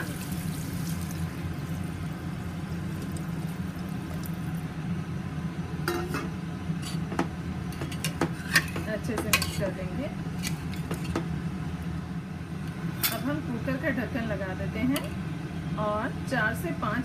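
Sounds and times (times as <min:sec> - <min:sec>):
water pouring into a pot: 0:00.0 - 0:04.6
steady low hum: 0:00.0 - 0:17.0.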